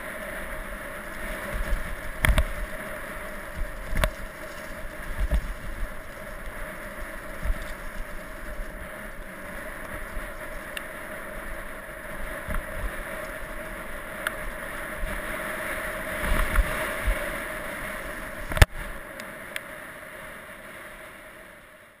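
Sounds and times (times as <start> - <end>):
wind on microphone: 0.2 - 10.8, 11.4 - 19.0
bike knocking and rattling: 1.4 - 11.0.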